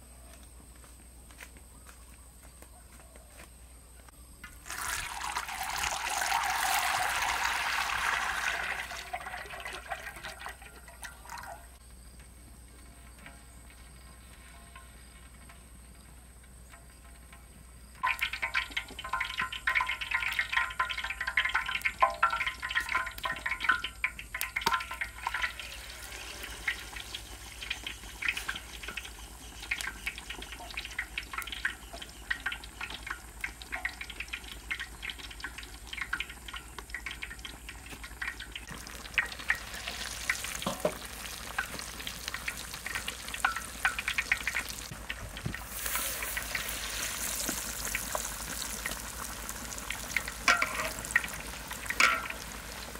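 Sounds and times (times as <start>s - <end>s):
chicken sizzling in hot oil: 4.4s - 12.1s, 12.7s - 52.9s.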